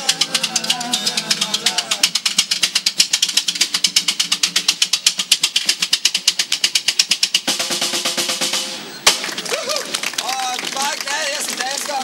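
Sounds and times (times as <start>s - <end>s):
snare drum fast strokes: 0.0s - 9.3s
steady pitched notes: 0.0s - 9.4s.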